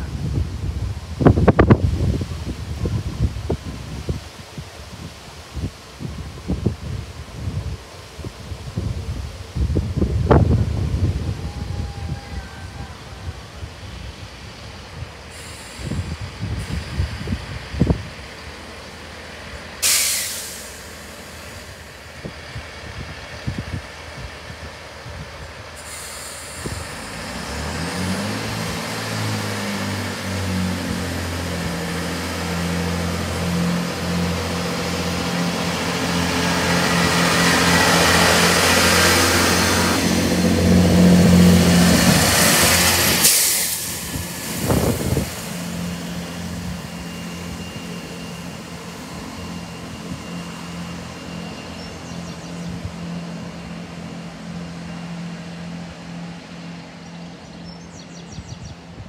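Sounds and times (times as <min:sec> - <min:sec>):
diesel train engines: 0:00.0 - 0:59.0
quiet diesel hum: 0:00.0 - 0:59.0
short hiss: 0:15.3 - 0:16.9, 0:19.8 - 0:21.7, 0:25.8 - 0:27.1.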